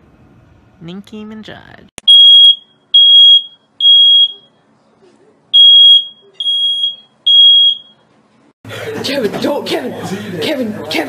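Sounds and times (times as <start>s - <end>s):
smoke alarm beeping: 2.0s - 4.5s, 5.6s - 8.0s.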